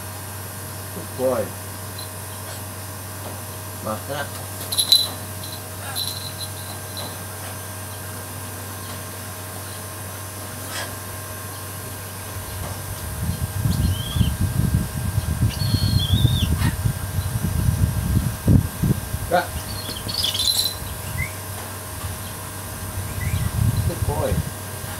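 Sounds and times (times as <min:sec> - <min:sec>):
background hum: 0:00.0 - 0:24.9
wind buffeting microphone: 0:12.5 - 0:20.2, 0:22.8 - 0:24.6
high bird chirps: 0:15.5 - 0:16.5, 0:19.6 - 0:21.4.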